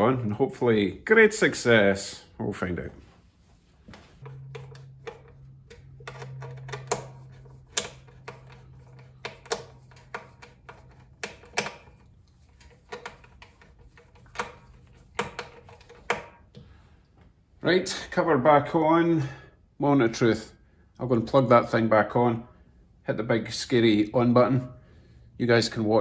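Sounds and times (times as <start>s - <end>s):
low steady hum: 0.0s - 25.9s
screwdriver clicking on metal: 4.2s - 16.2s.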